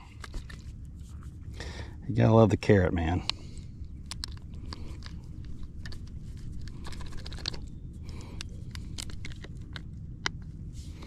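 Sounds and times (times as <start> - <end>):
steady low rumble: 0.0 - 11.0
hands handling fish clicking: 3.2 - 11.0.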